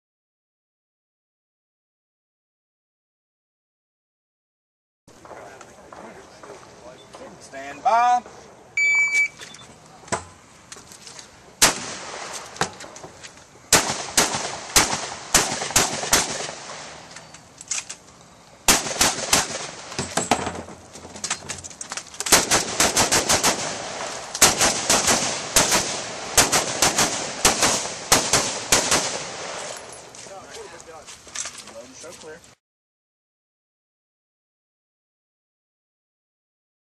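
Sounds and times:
rapid gunshots: 0:13.7 - 0:16.9, 0:18.7 - 0:19.9, 0:22.3 - 0:29.6.

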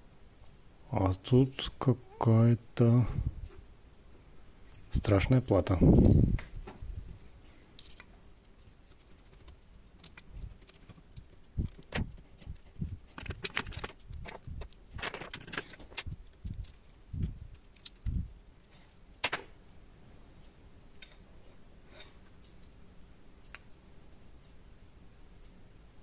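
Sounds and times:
metallic clicks and clinks: 0:10.0 - 0:18.8.

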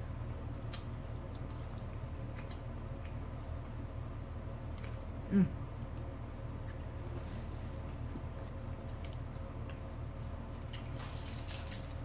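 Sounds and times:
low room hum: 0:00.0 - 0:12.0
soft chewing and mouth clicks: 0:00.6 - 0:03.8, 0:04.6 - 0:05.2, 0:05.9 - 0:12.0
short vocal sound: 0:05.3 - 0:05.6.

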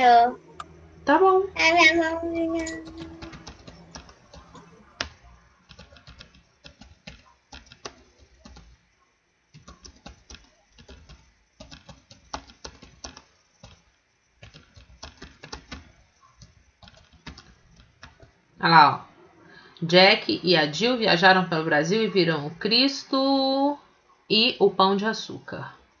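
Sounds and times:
keyboard typing: 0:02.4 - 0:08.8, 0:09.5 - 0:18.4.

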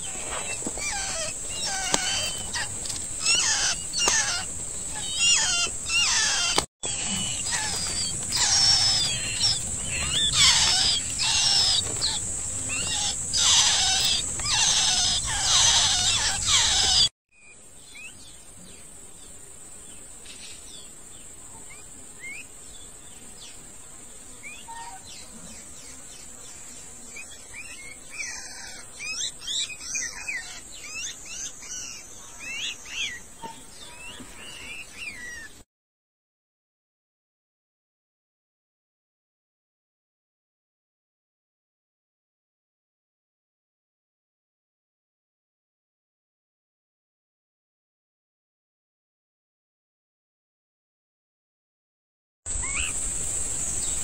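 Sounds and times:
baby birds begging chirps: 0:00.0 - 0:18.2, 0:27.2 - 0:35.5, 0:52.5 - 0:53.0.

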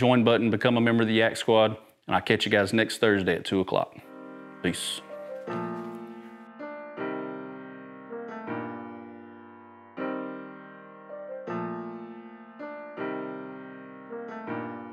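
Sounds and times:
slow piano chords: 0:04.0 - 0:14.9.

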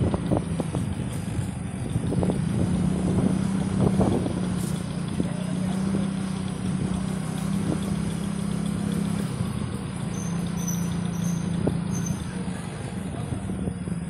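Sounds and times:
tyre and wind noise: 0:00.0 - 0:05.3
motorcycle engine running: 0:00.0 - 0:14.0.

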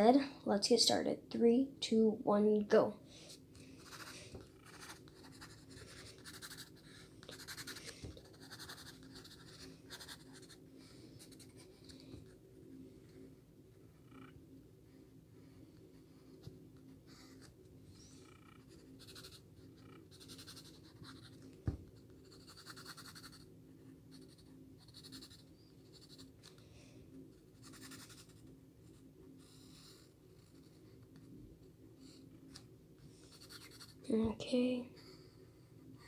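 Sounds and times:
low steady hum: 0:00.0 - 0:36.0
pencil scratching on paper: 0:03.8 - 0:10.6, 0:18.5 - 0:21.4, 0:22.1 - 0:23.5, 0:24.1 - 0:26.3, 0:27.6 - 0:31.3, 0:33.3 - 0:34.1.

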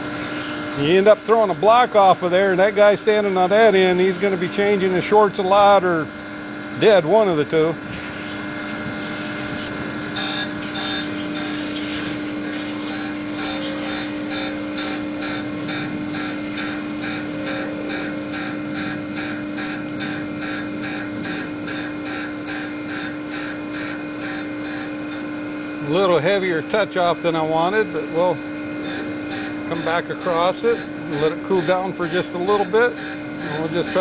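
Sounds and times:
grinder wheel grinding steel: 0:08.2 - 0:26.5, 0:27.3 - 0:34.0.

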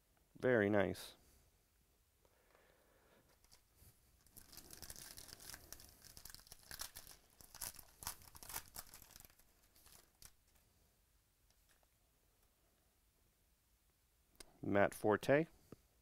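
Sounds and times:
foil wrapper tearing and crinkling: 0:04.2 - 0:10.6.

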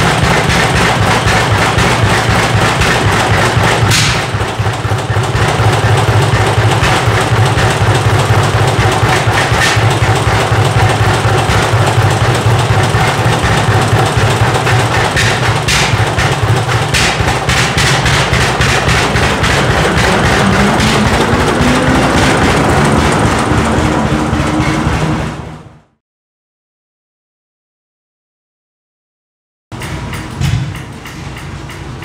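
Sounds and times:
tractor engine running: 0:00.0 - 0:25.9.

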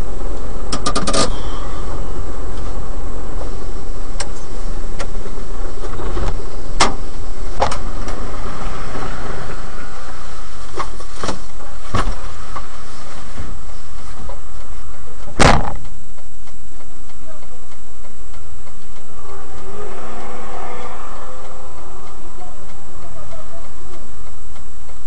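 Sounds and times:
truck engine idling: 0:00.0 - 0:15.3, 0:16.9 - 0:25.0
loud bang: 0:15.4 - 0:15.8
sharp clicks or knocks: 0:15.4 - 0:16.0.

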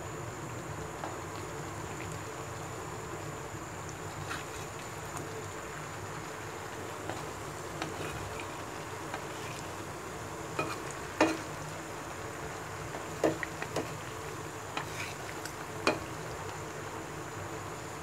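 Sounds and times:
fritters sizzling in hot oil: 0:00.0 - 0:18.0
metal spatula scraping a pan: 0:14.8 - 0:15.2.

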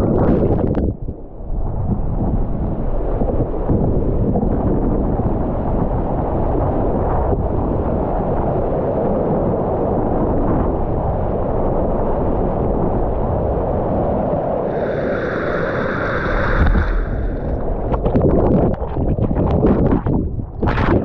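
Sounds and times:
floodwater rushing below dam: 0:14.7 - 0:18.6
water splashing over microphone: 0:14.7 - 0:21.0.

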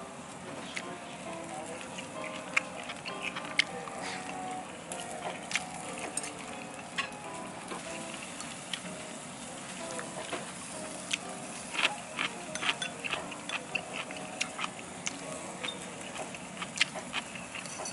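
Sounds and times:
meat sizzling on a grill: 0:00.0 - 0:17.9
chopsticks clicking on ceramic bowl: 0:12.6 - 0:14.6.

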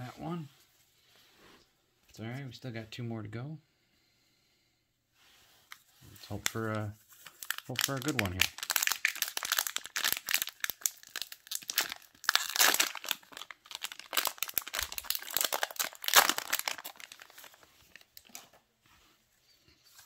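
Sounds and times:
plastic wrapper crinkling: 0:05.7 - 0:18.6.

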